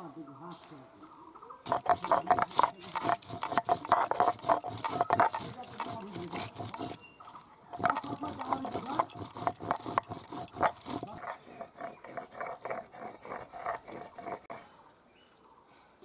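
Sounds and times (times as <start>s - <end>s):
stone roller scraping and knocking: 1.7s - 7.0s, 7.7s - 14.6s.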